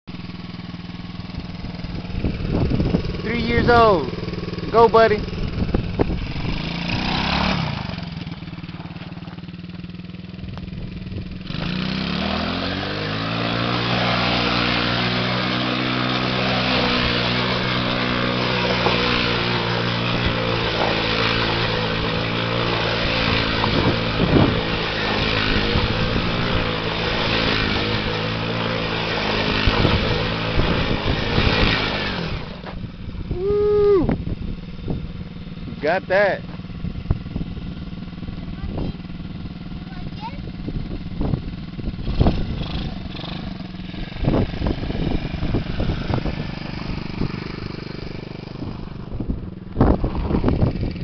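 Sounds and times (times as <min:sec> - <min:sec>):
small quad bike engine revving: 0:00.1 - 0:51.0
tyres crunching and spraying gravel: 0:03.0 - 0:10.2, 0:11.5 - 0:32.9.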